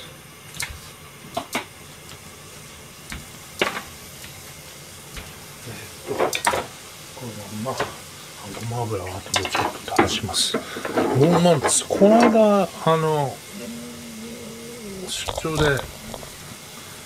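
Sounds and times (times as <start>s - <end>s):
liquid simmering and sizzling in pan: 0.0s - 17.0s.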